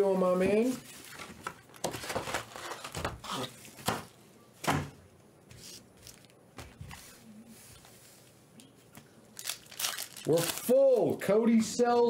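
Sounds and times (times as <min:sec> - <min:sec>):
foil packs rustling: 0:00.0 - 0:03.9, 0:05.6 - 0:06.3, 0:09.4 - 0:11.2.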